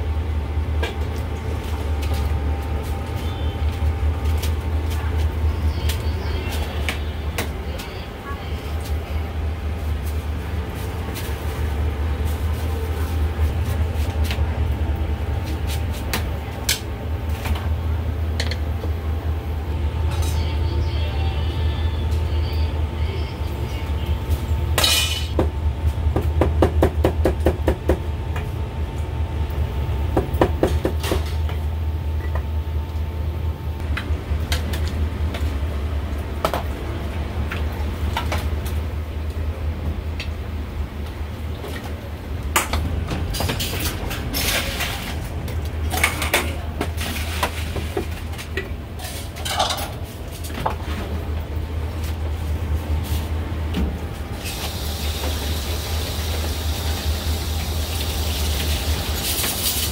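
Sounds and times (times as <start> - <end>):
steady low hum: 0.0 - 59.5
utensils clanking on metal pots: 45.9 - 50.0.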